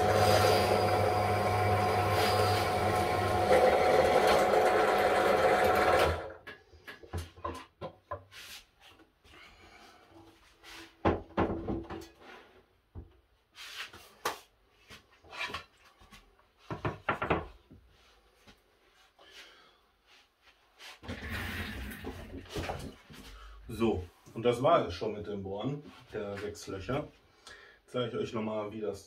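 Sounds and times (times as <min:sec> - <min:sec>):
drill press boring through wood: 0:00.0 - 0:06.4
wooden boards knocking and clattering: 0:11.0 - 0:12.2, 0:16.7 - 0:17.6.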